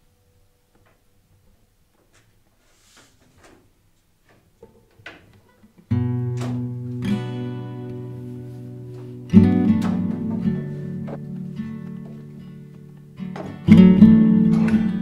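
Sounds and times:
acoustic guitar strumming: 0:05.6 - 0:15.0.

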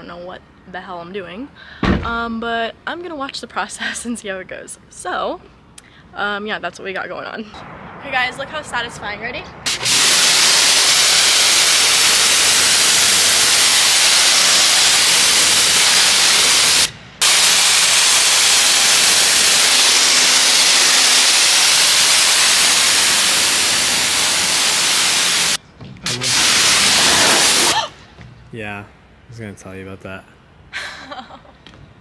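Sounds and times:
pressure washer spraying metal: 0:09.7 - 0:27.9.

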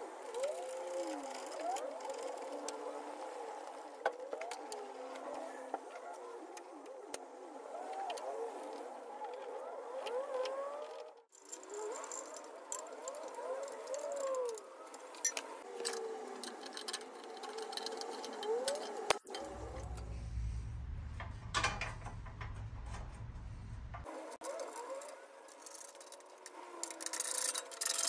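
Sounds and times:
metal clinks and rattles: 0:15.2 - 0:28.0
low engine rumble: 0:19.2 - 0:24.1.

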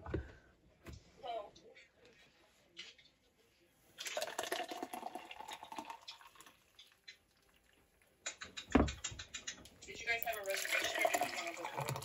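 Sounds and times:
thick smoothie pouring into cup: 0:04.0 - 0:06.7, 0:10.2 - 0:12.0.

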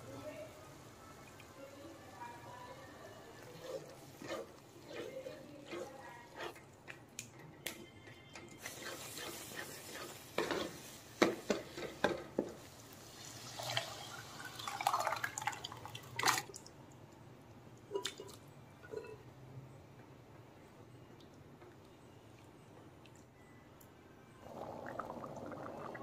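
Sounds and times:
spatula scraping in a wok: 0:03.2 - 0:06.7, 0:08.5 - 0:12.0.

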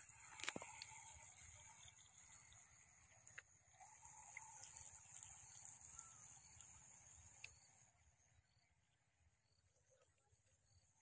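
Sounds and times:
small motor whine: 0:00.0 - 0:08.9
faint bird calls: 0:05.7 - 0:07.7.

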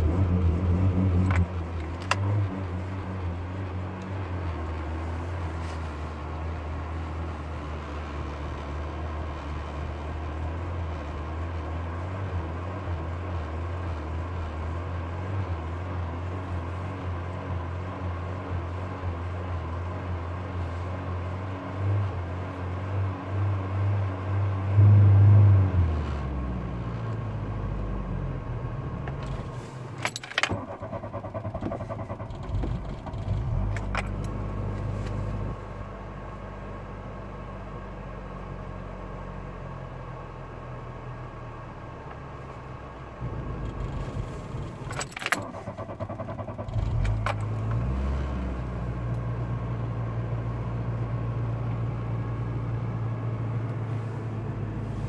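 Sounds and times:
car engine idling fast: 0:27.3 - 0:36.5, 0:41.3 - 0:49.9
keys jingling in ignition: 0:29.9 - 0:30.8, 0:44.4 - 0:45.9.

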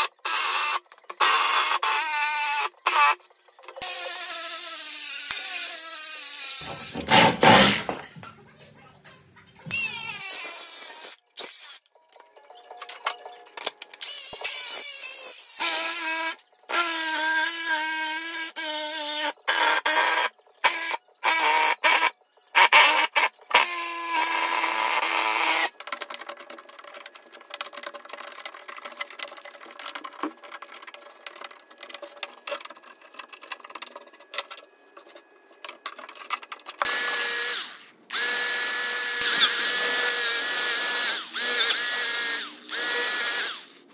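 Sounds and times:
angle grinder starting up: 0:03.8 - 0:08.0, 0:36.9 - 0:43.8
circular saw cutting wood: 0:03.8 - 0:08.0, 0:19.0 - 0:25.8, 0:36.8 - 0:43.9.

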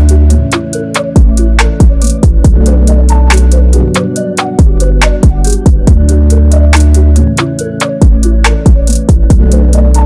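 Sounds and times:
electronic music with deep bass: 0:00.0 - 0:10.0.

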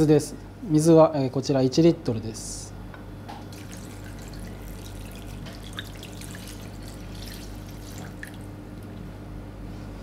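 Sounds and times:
steady low hum: 0:00.0 - 0:10.0
water pouring into metal saucepan: 0:03.5 - 0:08.5.

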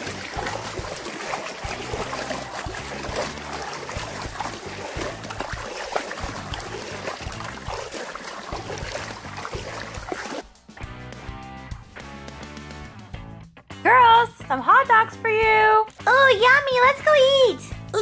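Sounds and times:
water sloshing in toy pool: 0:00.0 - 0:10.4.

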